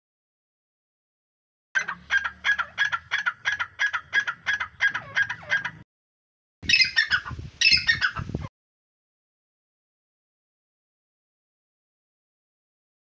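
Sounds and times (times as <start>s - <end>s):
harsh bird calls: 6.6s - 8.4s.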